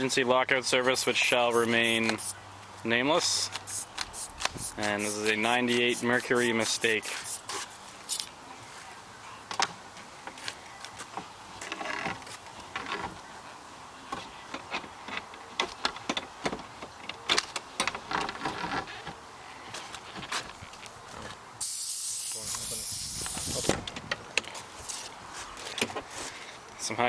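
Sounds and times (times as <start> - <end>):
short rattling bursts: 3.7 - 7.6.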